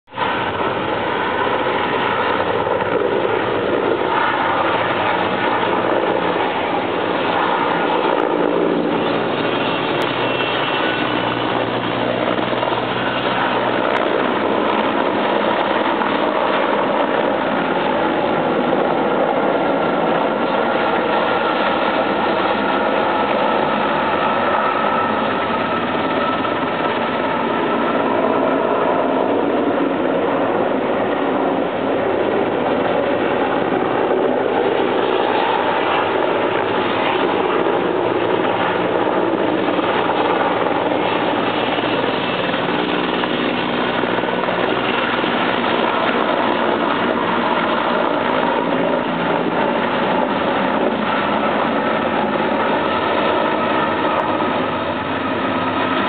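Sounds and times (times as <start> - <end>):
helicopter flying overhead: 0.1 - 56.0.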